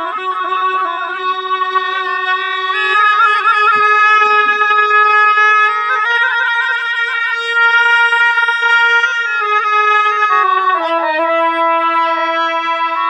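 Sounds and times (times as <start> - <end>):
double-reed shawm melody: 0.0 - 13.0.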